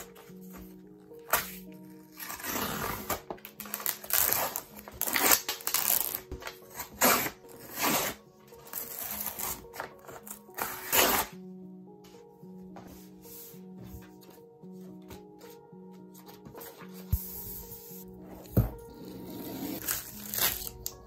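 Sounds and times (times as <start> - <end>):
soft background music: 0.0 - 21.0
paper cover tearing: 2.2 - 8.2, 19.8 - 20.9.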